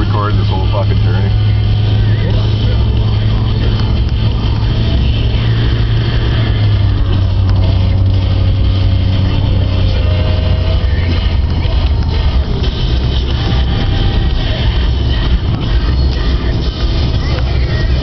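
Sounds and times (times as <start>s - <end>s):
car engine and tyre drone: 0.0s - 18.0s.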